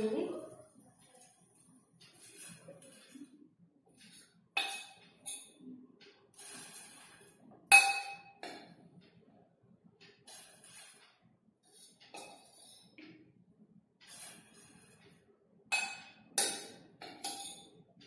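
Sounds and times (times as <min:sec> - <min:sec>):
metal spoon scraping a steel bowl: 0:02.1 - 0:03.3, 0:04.0 - 0:05.6, 0:10.3 - 0:11.0, 0:11.7 - 0:12.9, 0:14.1 - 0:15.0, 0:15.7 - 0:17.8.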